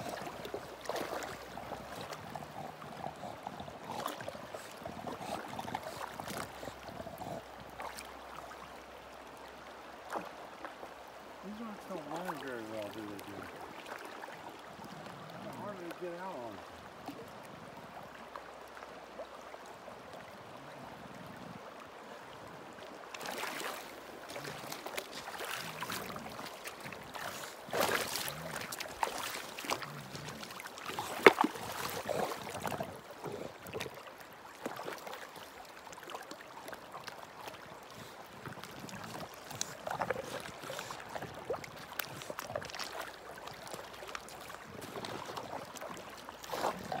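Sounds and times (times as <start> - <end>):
dog splashing in water: 0.0 - 2.7, 23.2 - 33.9
rushing river water: 0.0 - 47.0.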